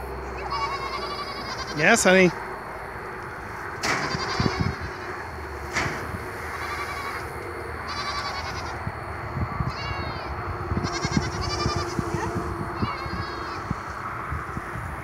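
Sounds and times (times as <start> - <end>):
goats bleating: 0.4 - 2.3, 3.9 - 5.4, 6.4 - 8.8, 9.6 - 14.0
sharp knocks: 3.8 - 4.2, 5.7 - 6.2.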